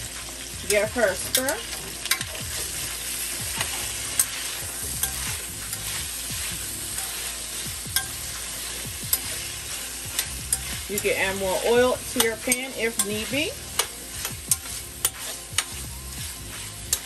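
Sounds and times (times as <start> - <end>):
potatoes sizzling in oil: 0.0 - 17.0
metal spoon clinking against pan: 7.9 - 8.3, 9.1 - 9.4, 10.2 - 11.2, 12.1 - 15.8.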